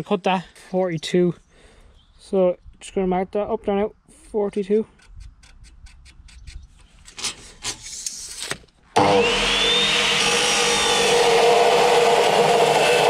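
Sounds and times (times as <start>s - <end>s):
chop saw grinding through steel: 5.0s - 13.0s.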